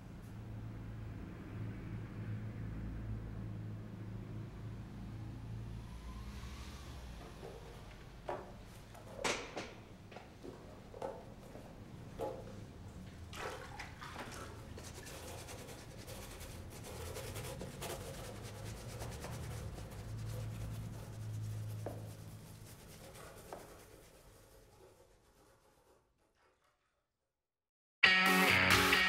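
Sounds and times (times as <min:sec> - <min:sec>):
rubbing and brushing boots: 0:14.4 - 0:26.0.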